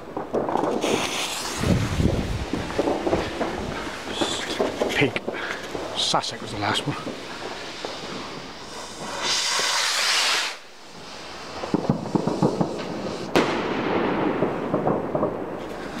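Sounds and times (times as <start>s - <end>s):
firework crackles and pops: 0.0s - 16.0s
firework rocket rushing hiss: 0.1s - 14.8s
sharp firework bang: 0.2s - 6.0s, 11.6s - 16.0s.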